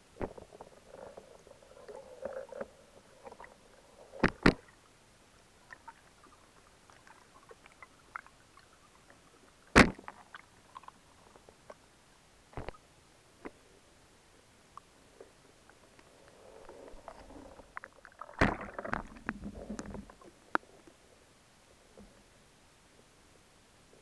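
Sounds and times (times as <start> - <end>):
underwater knocks and clicks: 0.2 - 4.8, 17.0 - 20.8.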